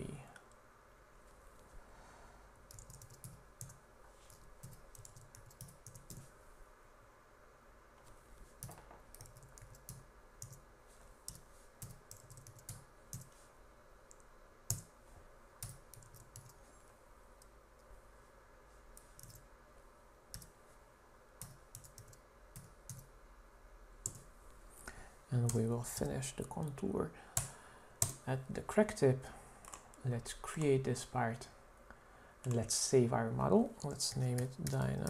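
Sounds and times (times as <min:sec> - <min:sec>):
computer keyboard typing: 0:02.7 - 0:06.3, 0:08.6 - 0:10.6, 0:11.2 - 0:13.4, 0:14.1 - 0:14.9, 0:15.6 - 0:16.6, 0:19.0 - 0:19.4, 0:20.3 - 0:20.5, 0:21.4 - 0:23.1, 0:24.0 - 0:24.3.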